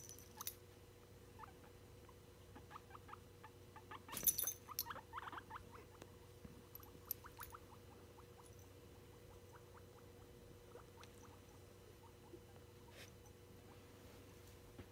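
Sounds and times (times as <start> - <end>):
faint steady hum: 0.0 - 14.9
guinea pig squeaking: 1.3 - 6.0, 6.8 - 13.1.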